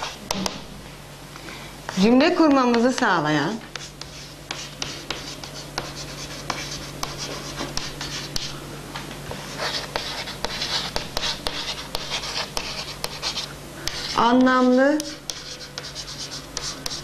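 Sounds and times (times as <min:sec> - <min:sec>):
chalk writing on chalkboard: 0:00.0 - 0:00.6, 0:03.7 - 0:08.6, 0:09.4 - 0:17.0.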